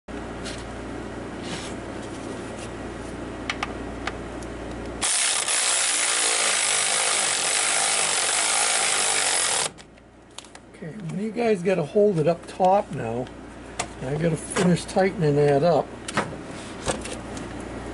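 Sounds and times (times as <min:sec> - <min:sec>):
power ratchet running: 0:05.0 - 0:09.8.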